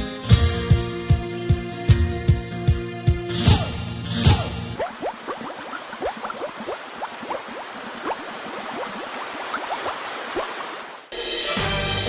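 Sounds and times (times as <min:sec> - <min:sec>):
water trickling over stones: 0:04.8 - 0:11.1.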